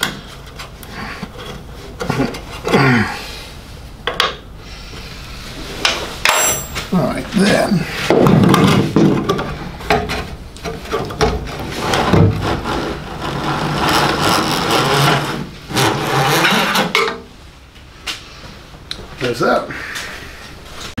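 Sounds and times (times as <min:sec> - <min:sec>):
scraping and rubbing of parts: 0:00.0 - 0:02.8, 0:04.8 - 0:17.4.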